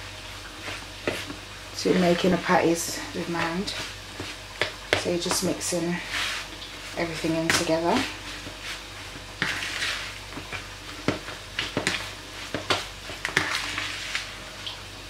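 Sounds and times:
fork mashing mince in bowl: 0:07.2 - 0:14.3.

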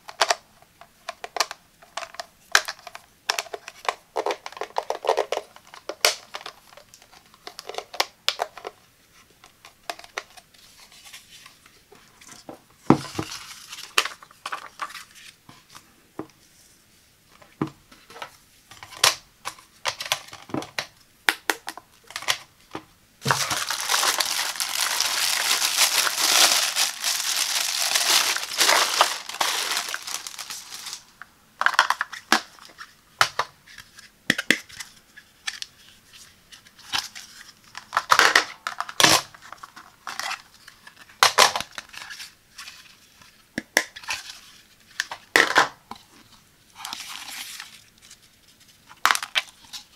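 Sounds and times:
plastic wrapping crinkling: 0:23.2 - 0:32.9.

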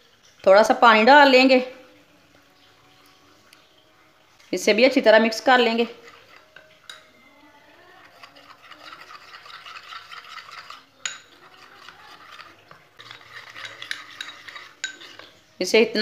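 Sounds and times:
spoon stirring wet paste: 0:04.4 - 0:16.0
spoon clinking against glass: 0:06.1 - 0:07.2, 0:08.1 - 0:15.3.

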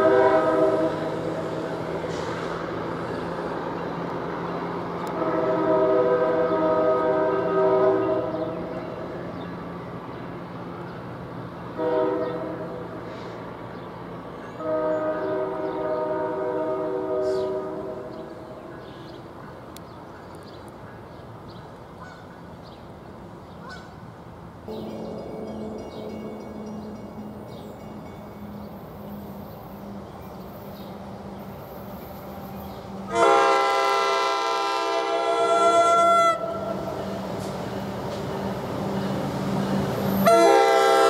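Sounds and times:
train horn blasts: 0:00.0 - 0:02.2, 0:05.0 - 0:08.8, 0:11.7 - 0:13.2, 0:14.6 - 0:18.4, 0:24.7 - 0:28.2, 0:33.0 - 0:37.0, 0:40.0 - 0:41.0
train rumble: 0:00.0 - 0:41.0.

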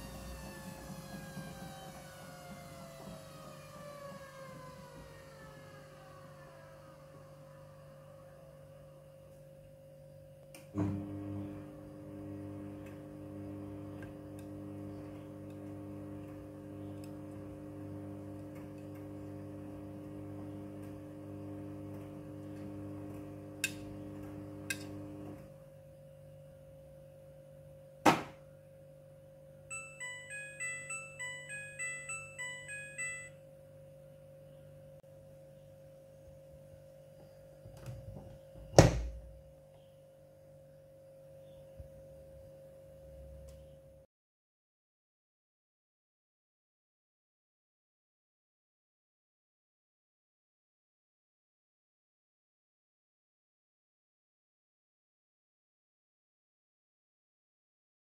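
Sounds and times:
washing machine motor whine: 0:00.0 - 0:28.0, 0:28.6 - 0:43.7
washing machine humming: 0:00.0 - 0:40.3
washing machine clunk: 0:38.1 - 0:39.3.

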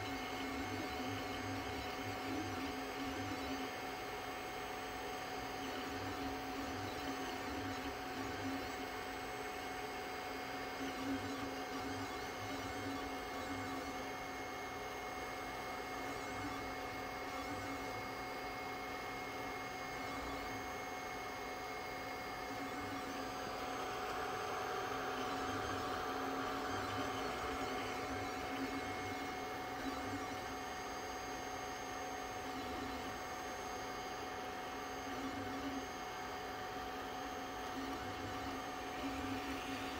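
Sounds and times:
fans humming: 0:14.7 - 0:39.9.

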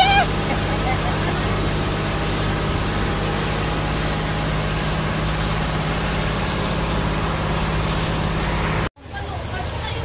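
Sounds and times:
boat engine droning: 0:00.0 - 0:10.0
water rushing: 0:00.0 - 0:10.0
wind: 0:00.0 - 0:10.0.

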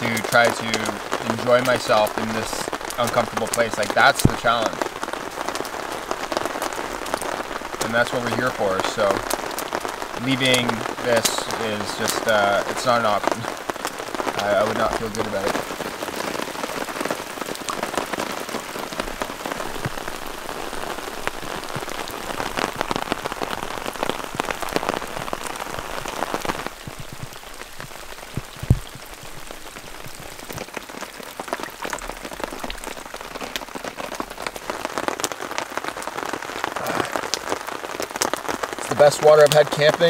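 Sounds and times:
heavy rain pattering on tarp: 0:00.0 - 0:40.0
water dripping: 0:00.0 - 0:40.0
low thump: 0:26.8 - 0:29.1.

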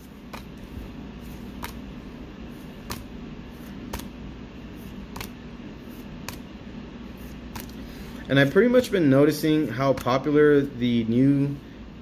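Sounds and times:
low room hum: 0:00.0 - 0:12.0
trading cards clicking: 0:05.2 - 0:05.4, 0:07.5 - 0:07.8.

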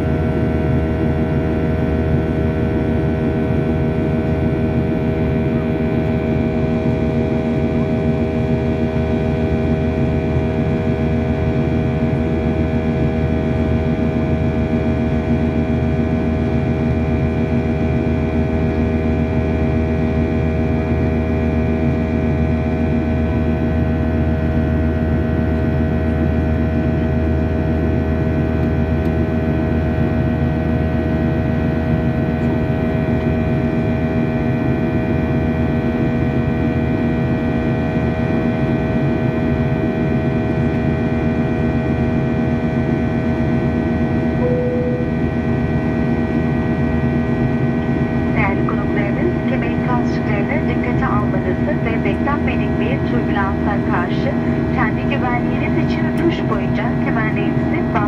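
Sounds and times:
airliner cabin engine drone: 0:00.0 - 0:58.0
brief beep: 0:44.4 - 0:45.2.

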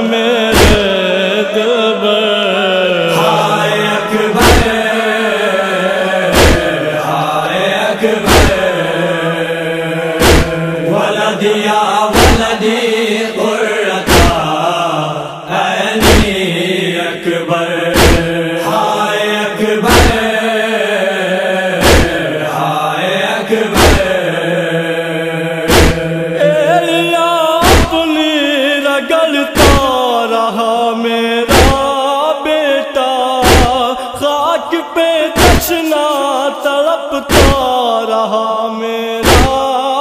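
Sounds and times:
voices chanting a lament: 0:00.0 - 0:40.0
heavy rhythmic thump: 0:00.5 - 0:01.0, 0:04.3 - 0:04.9, 0:06.2 - 0:07.0, 0:08.2 - 0:09.0, 0:10.1 - 0:10.8, 0:12.1 - 0:12.6, 0:14.0 - 0:14.6, 0:16.0 - 0:16.5, 0:17.9 - 0:18.4, 0:19.8 - 0:20.4, 0:21.8 - 0:22.4, 0:23.7 - 0:24.4, 0:25.6 - 0:26.2, 0:27.6 - 0:28.1, 0:29.6 - 0:30.0, 0:31.5 - 0:31.9, 0:33.4 - 0:34.0, 0:35.4 - 0:35.8, 0:37.2 - 0:37.7, 0:39.2 - 0:39.7.

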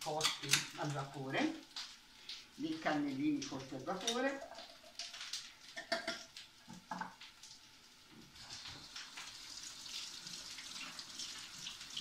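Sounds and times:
tap running into sink: 0:05.8 - 0:07.2.

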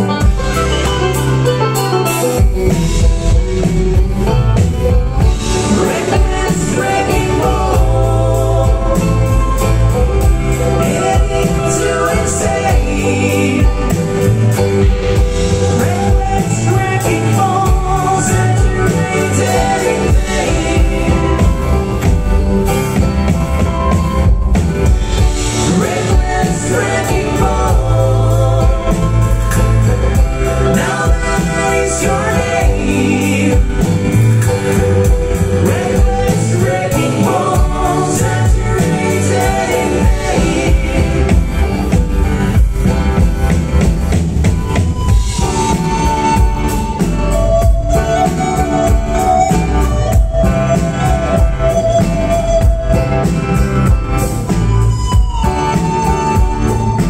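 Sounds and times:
acoustic guitar: 0:00.0 - 0:57.0
drums: 0:00.0 - 0:57.0
lead vocal: 0:00.0 - 0:57.0
upright bass: 0:00.0 - 0:57.0
person singing: 0:05.2 - 0:22.1, 0:25.2 - 0:42.2.

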